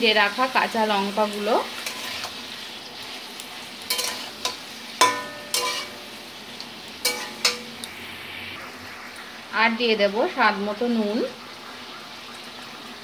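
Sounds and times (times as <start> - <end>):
vegetables sizzling in a pan: 0.0 - 13.0
metal spatula knocking on pan: 5.0 - 5.8.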